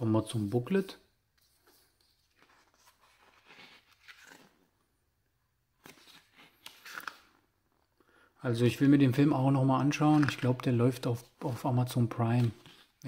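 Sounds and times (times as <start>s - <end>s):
paper pages rustling: 0.3s - 4.7s, 5.8s - 7.3s, 9.8s - 13.0s.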